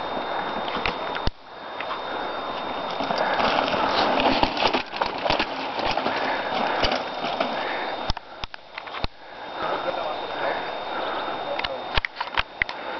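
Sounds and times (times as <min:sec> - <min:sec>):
mountain bike rattling over rocks: 0:02.6 - 0:09.0.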